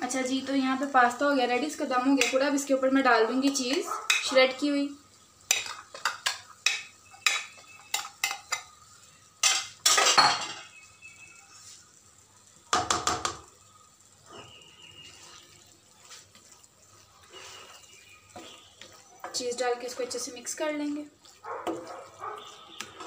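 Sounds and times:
spatula stirring pasta in pan: 0:00.1 - 0:10.2, 0:10.8 - 0:23.0
kitchenware clinking on frying pan: 0:02.1 - 0:02.5, 0:03.4 - 0:04.4, 0:05.5 - 0:08.8, 0:09.4 - 0:10.8.

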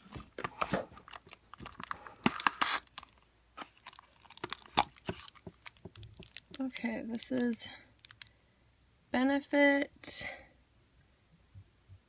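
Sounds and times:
cardboard clicking and rustling: 0:00.0 - 0:08.1.

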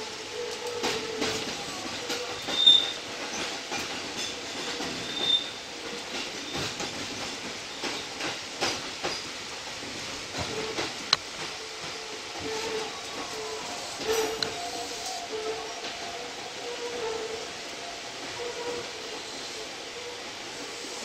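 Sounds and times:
wheels clicking over rail joints: 0:00.0 - 0:16.6
high wheel squeals: 0:02.4 - 0:03.5, 0:04.3 - 0:05.6.

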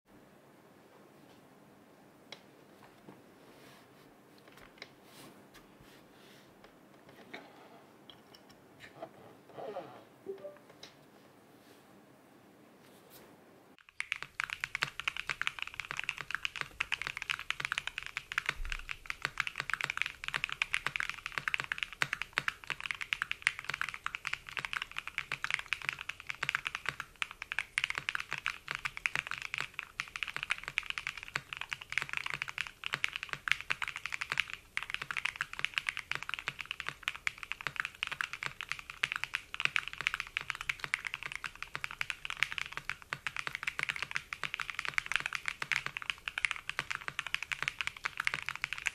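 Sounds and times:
mechanical keyboard typing: 0:13.8 - 0:48.9.

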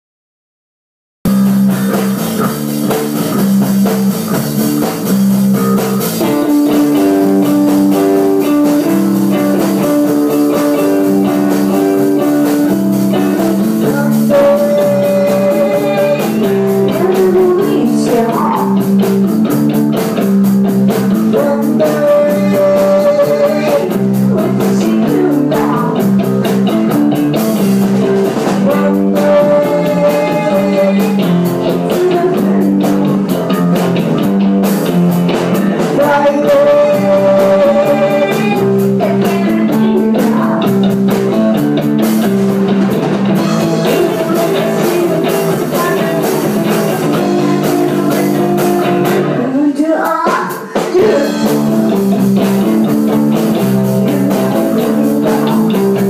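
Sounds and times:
live rock band playing: 0:01.3 - 0:56.0
woman singing lead: 0:06.2 - 0:19.0, 0:21.2 - 0:27.0, 0:28.5 - 0:33.6, 0:35.6 - 0:41.5, 0:43.4 - 0:51.8, 0:53.7 - 0:56.0.

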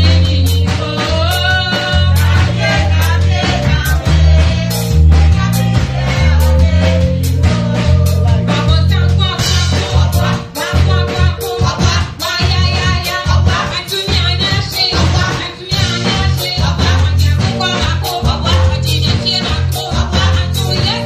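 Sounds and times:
woman singing into a microphone: 0:00.0 - 0:02.5, 0:08.1 - 0:21.0
drum beats: 0:00.0 - 0:21.0
pulsing bass line: 0:00.0 - 0:21.0.

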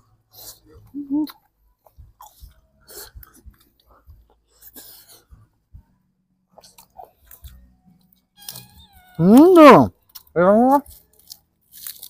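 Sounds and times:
person chewing with wet smacks: 0:00.4 - 0:05.4, 0:06.5 - 0:07.7
breaths through the nose: 0:02.2 - 0:05.5.

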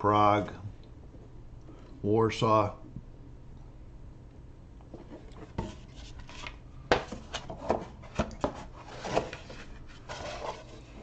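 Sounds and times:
cardboard sheets sliding: 0:07.1 - 0:11.0.

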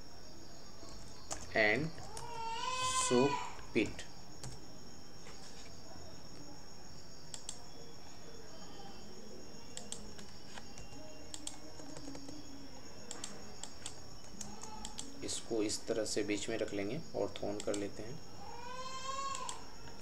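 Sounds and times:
computer keyboard clicks: 0:01.0 - 0:02.3, 0:07.3 - 0:07.6, 0:09.7 - 0:12.4, 0:13.1 - 0:15.2, 0:17.4 - 0:17.9, 0:19.3 - 0:20.0
mouse clicks: 0:07.3 - 0:07.6, 0:09.7 - 0:12.4, 0:13.1 - 0:15.1.

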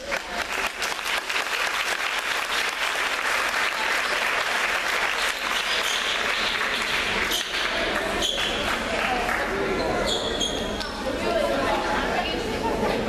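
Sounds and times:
crowd applauding: 0:00.0 - 0:09.7.

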